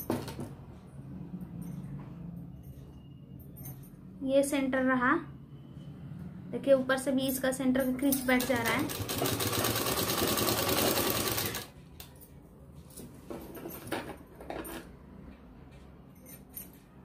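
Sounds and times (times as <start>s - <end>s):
sewing machine stitching: 8.2s - 11.7s.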